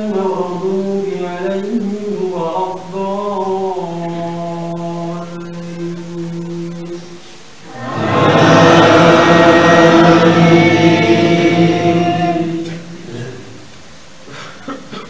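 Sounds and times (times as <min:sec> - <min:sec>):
man chanting: 0:00.0 - 0:07.1
men chanting in unison: 0:07.7 - 0:13.5.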